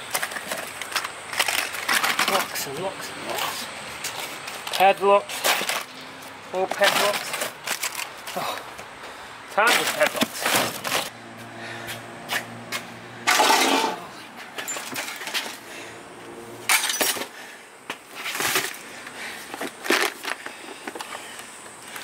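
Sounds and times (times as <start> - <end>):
metal tools clattering in plastic tub: 0.1 - 3.6, 4.7 - 5.9, 6.6 - 8.6, 9.6 - 11.1, 13.3 - 15.6, 16.7 - 17.3, 18.2 - 18.8.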